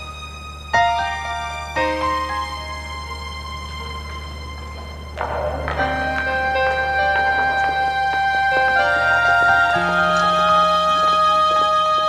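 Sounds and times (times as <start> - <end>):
slow held music notes: 0.0 - 12.0.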